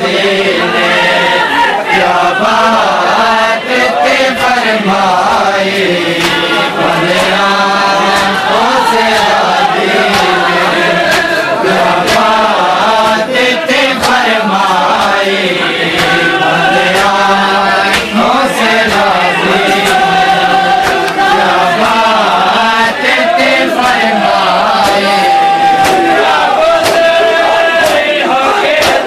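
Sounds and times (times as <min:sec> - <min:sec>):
men chanting together: 0:00.0 - 0:29.0
hands slapping bare chests: 0:05.2 - 0:13.2, 0:13.9 - 0:15.3, 0:15.9 - 0:20.1, 0:20.8 - 0:22.0, 0:22.8 - 0:24.1, 0:24.7 - 0:27.2, 0:27.8 - 0:28.1, 0:28.8 - 0:29.0.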